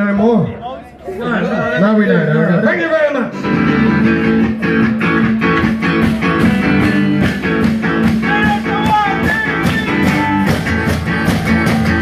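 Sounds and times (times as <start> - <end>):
live rock band playing: 3.3 - 12.0.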